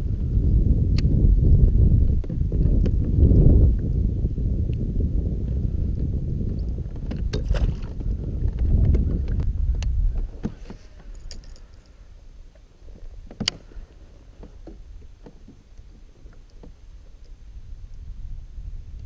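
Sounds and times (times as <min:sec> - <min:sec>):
wind rumble on microphone: 0:00.0 - 0:19.0
fishing tackle clicks and knocks: 0:06.5 - 0:12.0.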